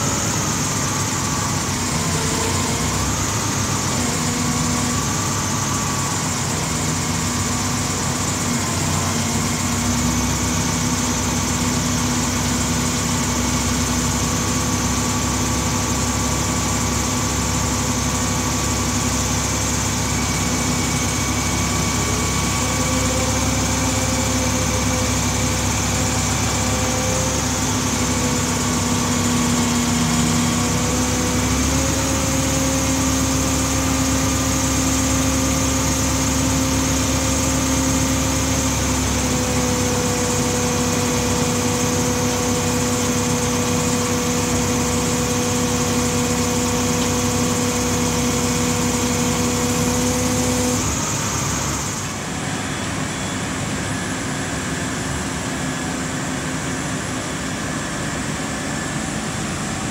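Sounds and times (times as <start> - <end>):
diesel crane engine running: 0.0 - 59.9
steady whine: 0.0 - 59.9.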